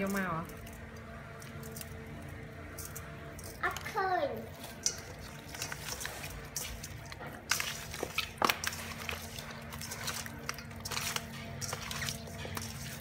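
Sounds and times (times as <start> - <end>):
hand squishing raw chicken: 4.5 - 13.0.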